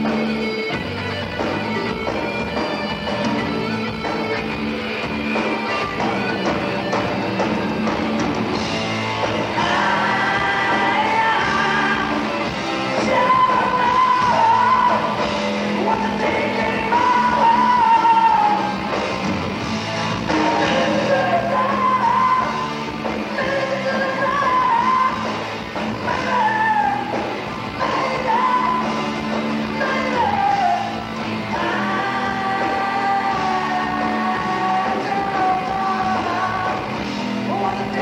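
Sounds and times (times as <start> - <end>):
live rock band playing: 0.0 - 38.0
man singing lead vocal: 9.3 - 18.9, 20.3 - 38.0.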